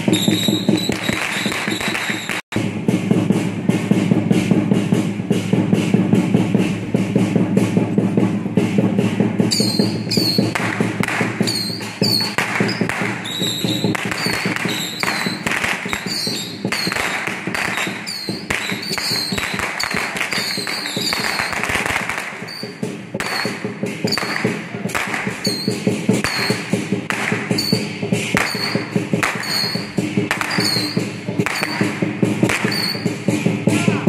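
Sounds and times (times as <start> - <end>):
drums beaten fast: 0.0 - 34.0
cymbals ringing: 8.1 - 34.0.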